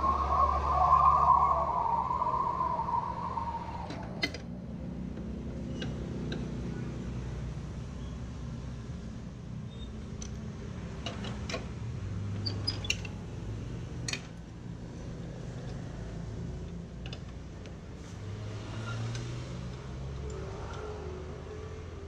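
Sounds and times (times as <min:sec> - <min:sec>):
low hum: 0:00.0 - 0:05.0.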